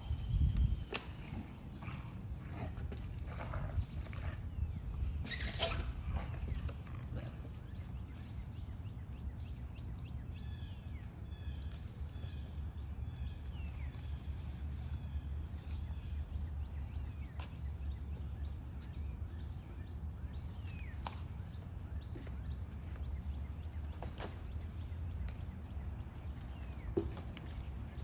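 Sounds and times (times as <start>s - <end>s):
birds chirping: 0.0s - 28.0s.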